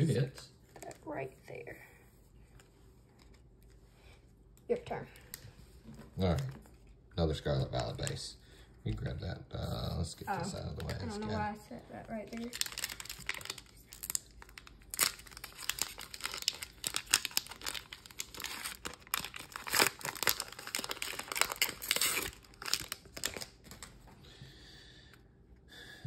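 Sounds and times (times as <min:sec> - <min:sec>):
foil wrapper tearing and crinkling: 0:12.2 - 0:24.0.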